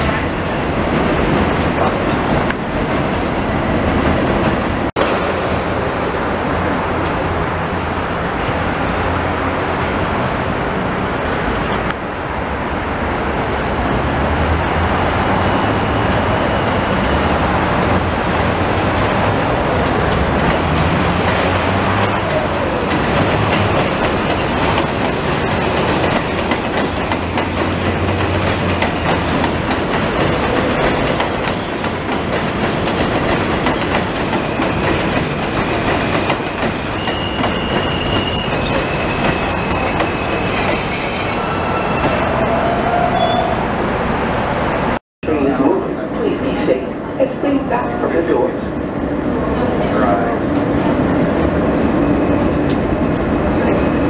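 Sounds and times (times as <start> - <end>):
train wheels clattering on rails: 18.3 - 42.2
high brake squeal: 36.8 - 43.8.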